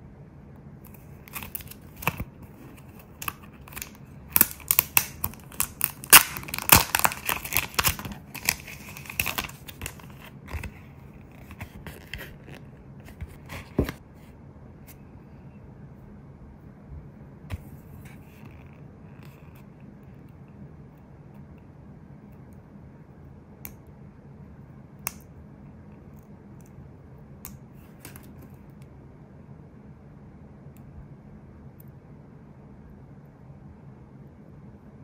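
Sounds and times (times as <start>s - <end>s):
steady low hum: 0.0s - 35.0s
paper rustle: 4.6s - 14.0s.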